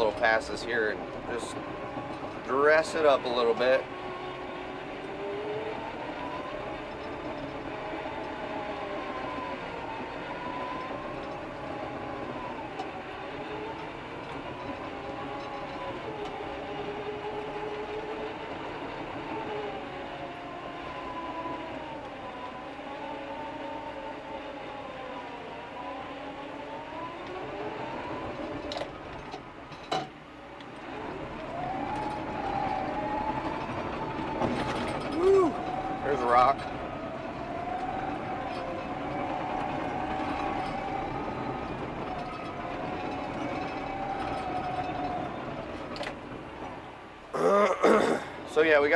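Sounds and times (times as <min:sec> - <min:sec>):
bulldozer engine drone: 0:00.0 - 0:48.9.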